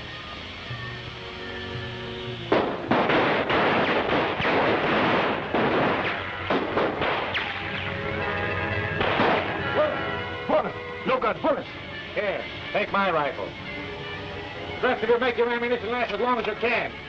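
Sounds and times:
film music: 0:00.0 - 0:17.0
gunfire: 0:02.5 - 0:08.0, 0:09.0 - 0:09.6.

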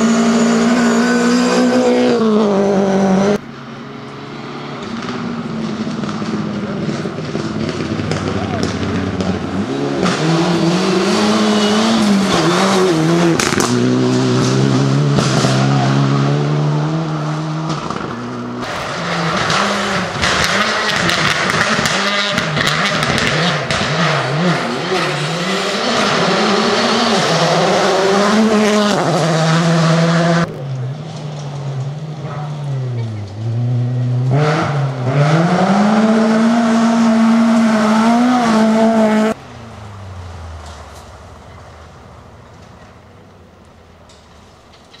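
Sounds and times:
rally car engines revving: 0:00.0 - 0:45.0.

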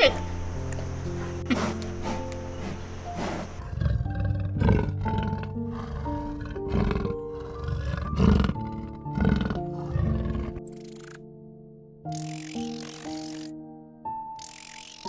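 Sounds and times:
gentle background music: 0:00.0 - 0:15.0
big cat roaring: 0:03.3 - 0:10.7.

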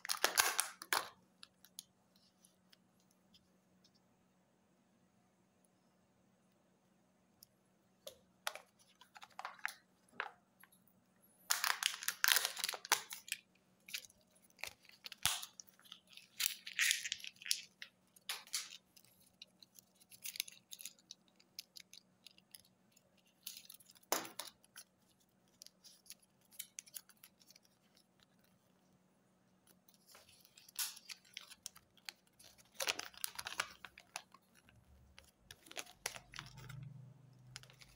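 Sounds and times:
plastic and foil wrapping tearing: 0:00.0 - 0:01.1, 0:11.5 - 0:24.9, 0:29.9 - 0:37.9.

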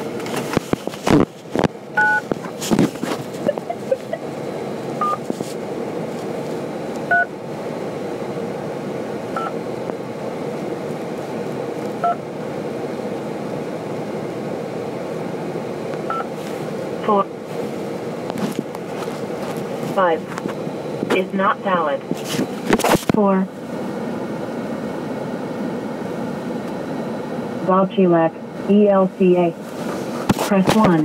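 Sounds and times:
telephone keypad beeps: 0:02.0 - 0:02.2.

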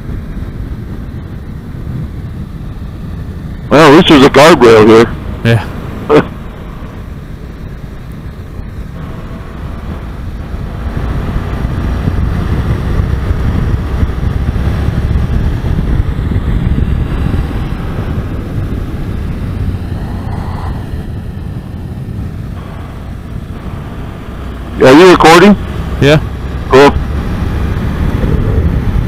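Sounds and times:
wind buffeting microphone: 0:00.0 - 0:29.0
motorcycle engine running: 0:05.1 - 0:20.0.

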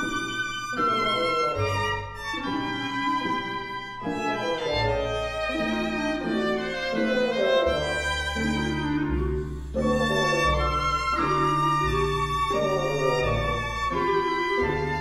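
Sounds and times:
violin melody: 0:00.0 - 0:15.0
low sustained bass notes: 0:04.8 - 0:15.0.

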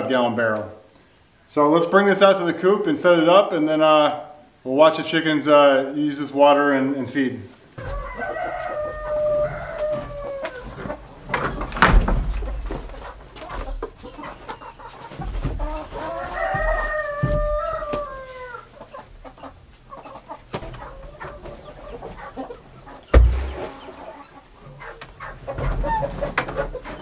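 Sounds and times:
rooster crowing: 0:07.8 - 0:10.7, 0:16.1 - 0:18.7
wooden stand knocking down: 0:11.4 - 0:12.8, 0:23.1 - 0:23.9
plastic drum thumping down: 0:11.7 - 0:12.8, 0:23.1 - 0:23.9.

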